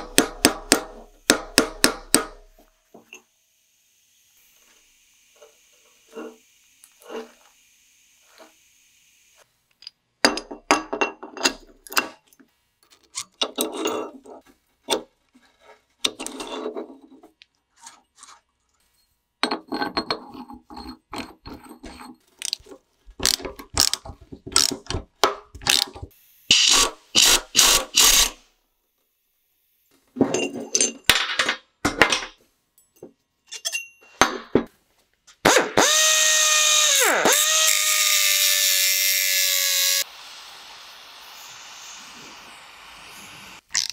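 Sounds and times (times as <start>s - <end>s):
angle grinder cutting metal: 0.9s - 9.5s, 25.6s - 28.5s, 35.5s - 43.9s.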